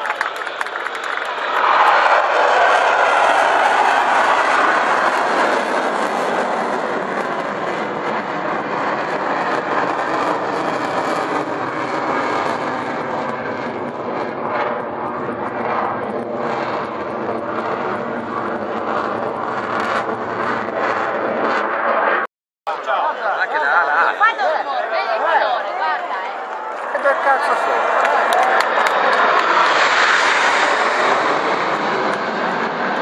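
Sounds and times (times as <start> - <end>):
fighter jet engine roar: 0.0 - 33.0.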